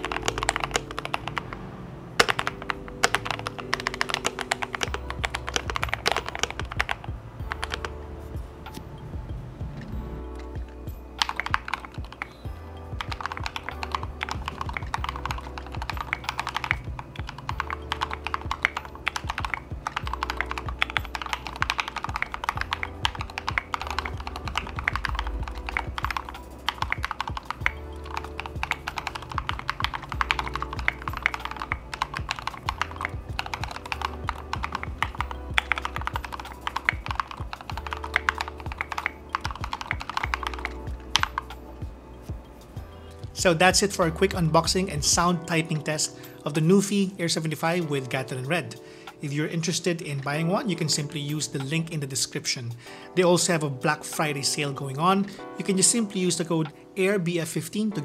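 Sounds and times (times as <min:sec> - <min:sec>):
mechanical keyboard typing: 0:00.0 - 0:01.6, 0:02.2 - 0:08.1, 0:09.7 - 0:46.0
background music: 0:00.0 - 0:58.0.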